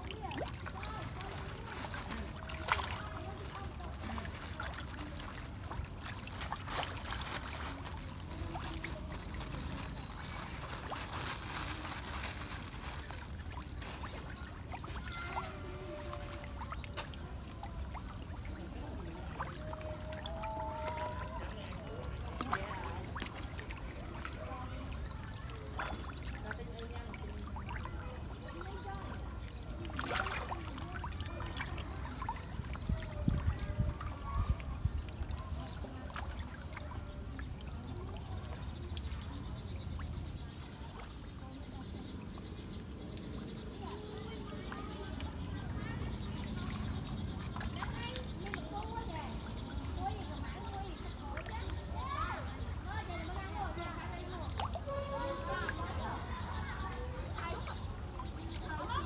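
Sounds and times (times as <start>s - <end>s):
fish splashing at water surface: 0.0s - 59.0s.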